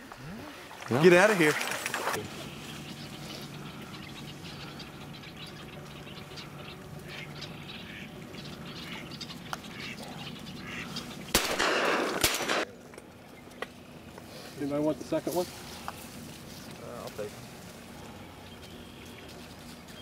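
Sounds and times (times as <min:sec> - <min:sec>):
steady low hum: 0:00.0 - 0:20.0
ducks quacking: 0:00.9 - 0:12.3
noisy burst with sharp cracks: 0:11.3 - 0:12.8.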